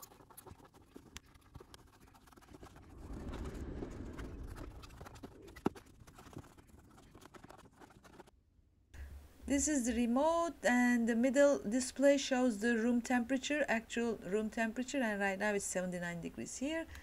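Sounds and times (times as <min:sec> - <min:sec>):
fingers rubbing foam strip: 0:00.0 - 0:03.0, 0:04.3 - 0:08.3.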